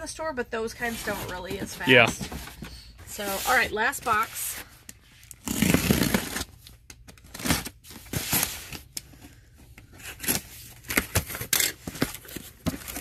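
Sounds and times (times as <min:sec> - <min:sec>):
tape tearing: 0:05.2 - 0:08.9
box cutter slitting packing tape: 0:05.4 - 0:06.5.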